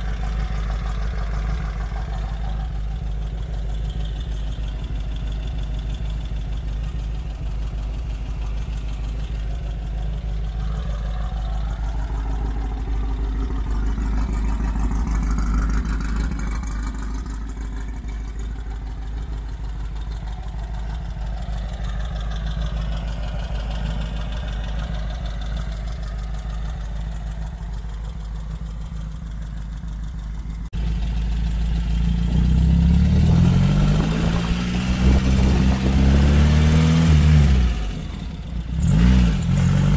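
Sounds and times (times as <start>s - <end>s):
engine revving: 0.0s - 27.9s, 30.8s - 39.9s
car engine idling: 0.0s - 39.9s.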